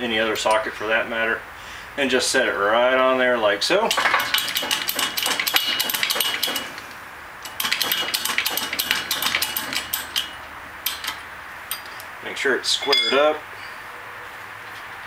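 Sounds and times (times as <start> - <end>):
steel parts clinking and rattling: 3.9 - 12.1, 12.8 - 13.4.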